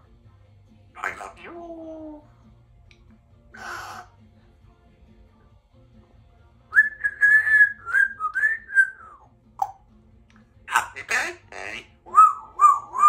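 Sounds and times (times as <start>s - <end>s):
parrot whistling: 6.8s - 9.2s, 12.1s - 13.0s.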